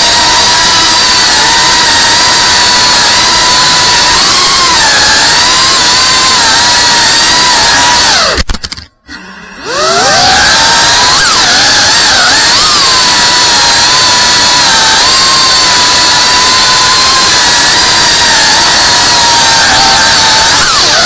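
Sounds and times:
drone motors whining: 0.0s - 8.4s, 9.1s - 21.0s.

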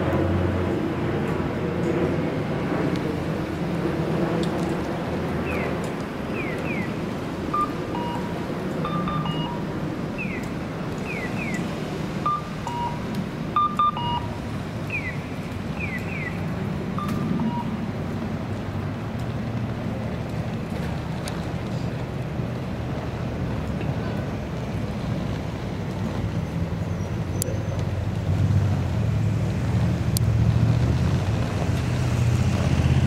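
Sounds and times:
street traffic: 0.0s - 33.0s
falling electronic chirps: 7.5s - 10.4s, 12.2s - 13.0s, 13.6s - 15.2s
short two-note beeps: 7.6s - 9.7s, 12.3s - 13.0s, 13.6s - 14.4s.

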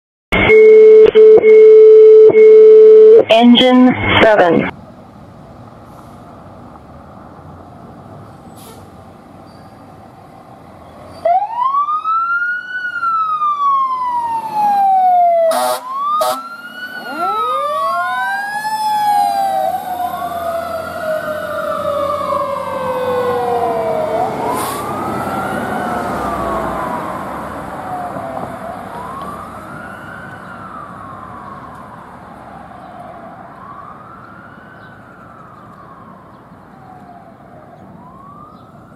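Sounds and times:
siren wailing up and down: 11.2s - 38.9s
air horn blasts: 15.5s - 16.5s.

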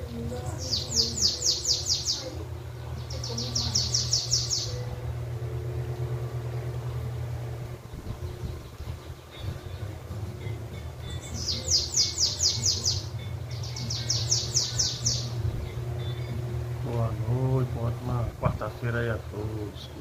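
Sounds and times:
bird singing high notes: 0.0s - 2.4s, 3.0s - 5.2s, 8.2s - 16.5s.

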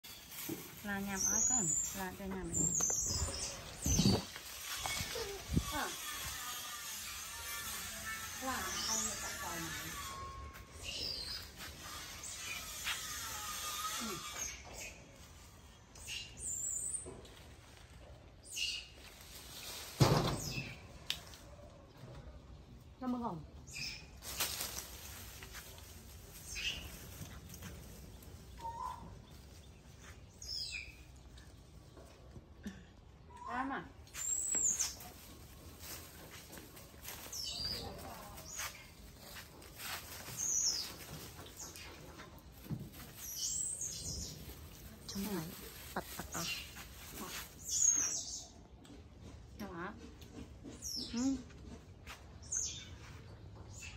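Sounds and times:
rustling leaves and branches: 0.0s - 48.8s
small bird chirping: 43.2s - 48.7s.

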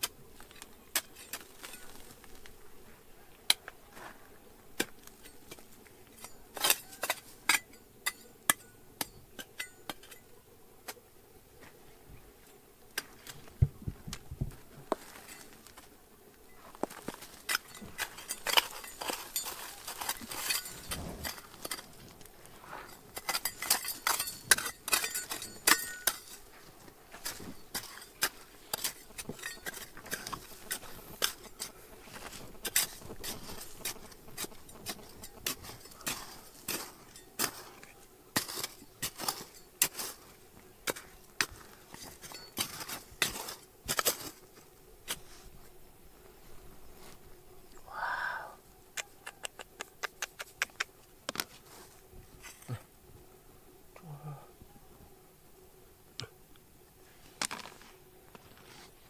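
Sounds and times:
stones and gravel clinking: 0.4s - 2.5s, 14.9s - 15.8s, 16.6s - 40.3s, 40.9s - 44.4s.

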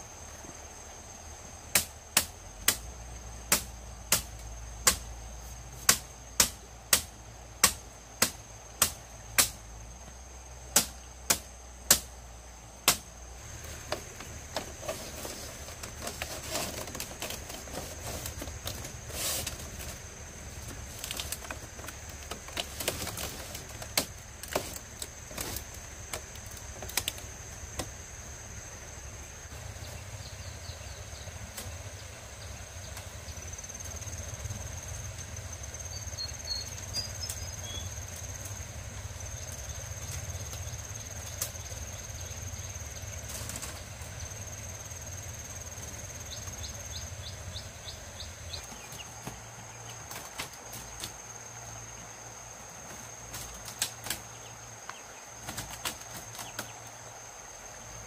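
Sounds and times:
high insect drone: 0.0s - 58.0s
knocks and taps on bamboo: 1.7s - 2.9s, 3.5s - 5.1s, 5.8s - 12.2s, 12.8s - 13.2s, 20.6s - 28.0s, 48.6s - 51.2s, 52.8s - 57.0s
bird chirps: 35.9s - 37.9s.

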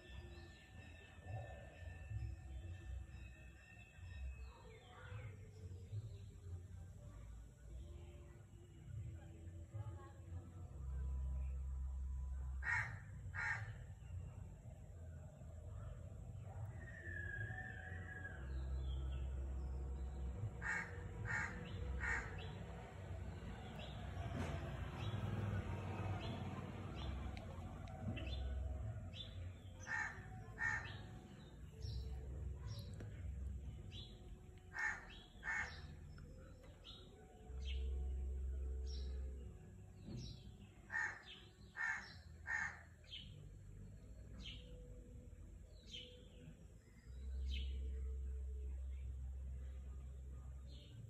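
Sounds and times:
crow cawing: 12.6s - 13.7s, 20.6s - 22.4s, 34.7s - 35.8s, 41.8s - 42.8s.

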